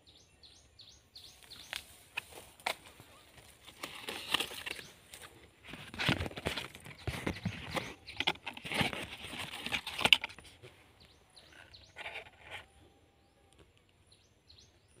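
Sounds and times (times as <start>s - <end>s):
papery sheath rustling: 1.7s - 10.6s.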